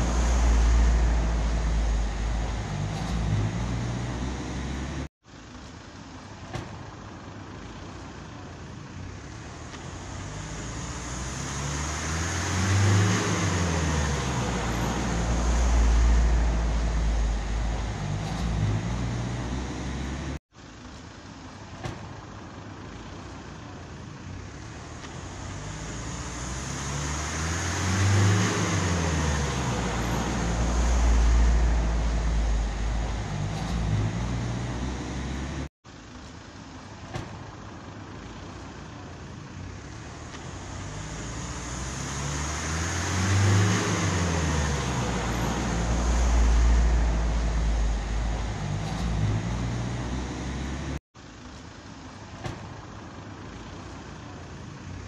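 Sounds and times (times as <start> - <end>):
vehicle engine passing by: 0.0 - 5.1, 9.0 - 20.4, 24.4 - 35.7, 38.9 - 51.0.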